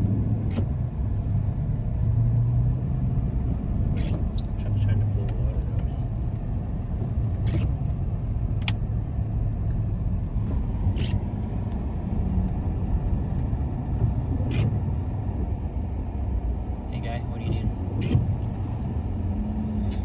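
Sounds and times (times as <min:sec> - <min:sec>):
engine and tyre rumble: 0:00.0 - 0:20.0.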